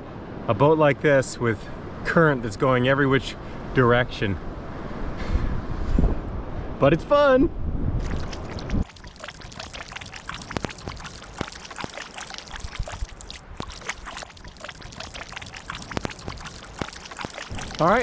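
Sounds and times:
small water splashes: 8.0 - 18.0
water dripping off paddle: 8.0 - 18.0.

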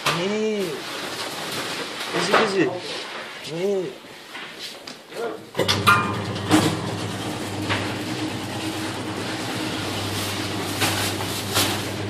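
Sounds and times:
machinery humming: 5.6 - 12.0.

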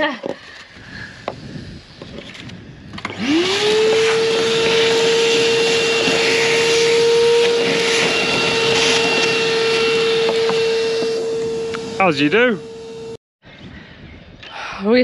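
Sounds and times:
vacuum cleaner running: 3.0 - 13.2.

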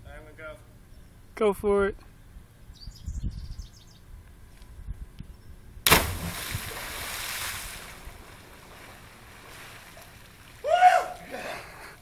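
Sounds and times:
loud splash into lake: 5.9 - 10.7.

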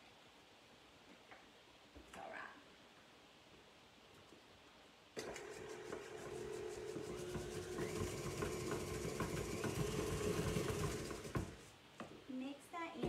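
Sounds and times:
electric stand mixer humming: 5.2 - 11.7.

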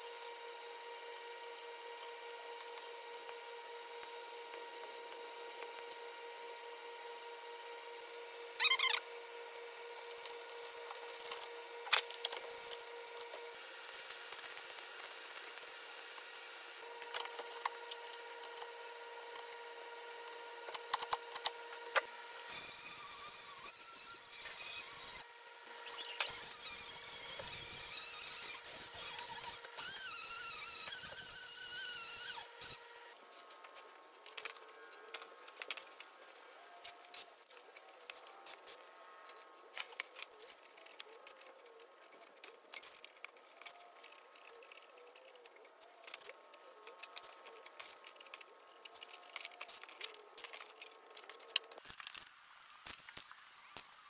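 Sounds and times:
drill grinding steel: 25.9 - 32.9.

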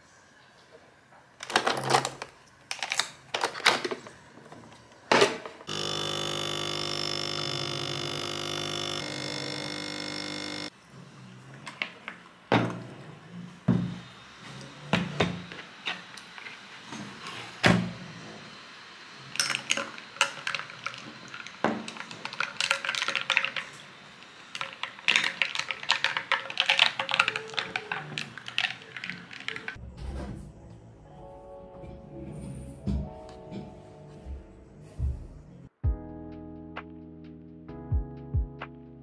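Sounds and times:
ice and straw clinking in glass: 19.4 - 23.8, 24.6 - 29.8.

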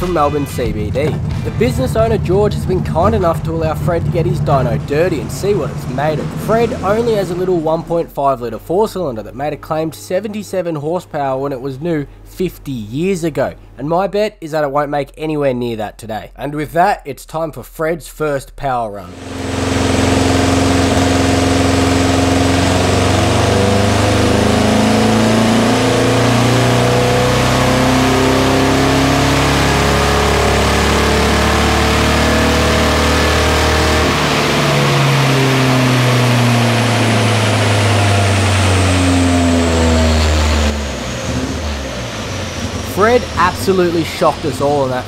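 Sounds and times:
car engine at full throttle: 0.0 - 8.1, 19.1 - 45.0.

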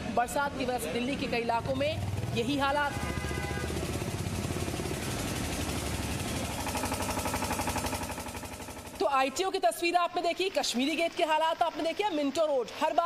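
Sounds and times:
motor engine pulsing: 2.0 - 9.7.

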